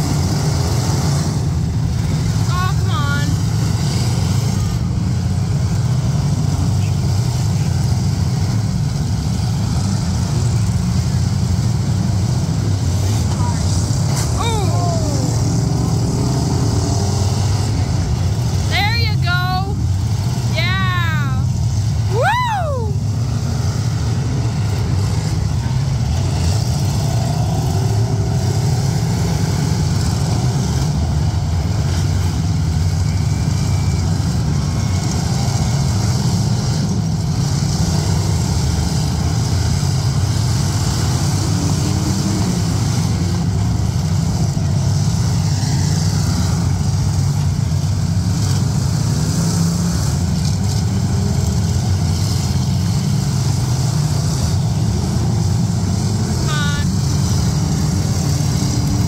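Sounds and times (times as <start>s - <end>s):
car engines droning: 0.0s - 59.0s
spectator whooping: 14.3s - 15.7s, 22.1s - 23.1s.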